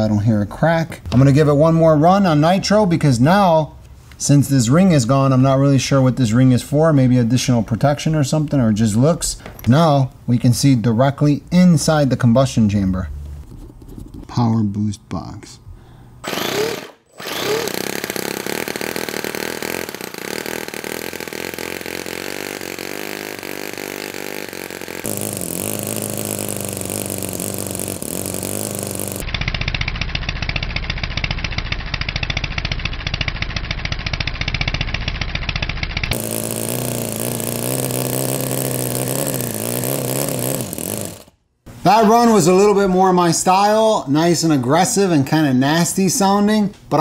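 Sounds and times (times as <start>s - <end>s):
model engine buzzing: 16.2s - 41.4s.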